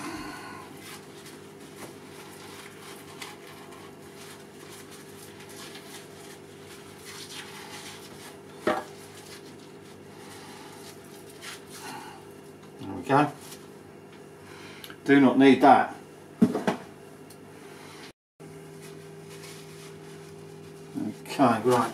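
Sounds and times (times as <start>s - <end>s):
steady low hum: 0.0s - 21.9s
paper towel rustling: 0.2s - 12.2s, 12.9s - 13.8s, 18.5s - 21.9s.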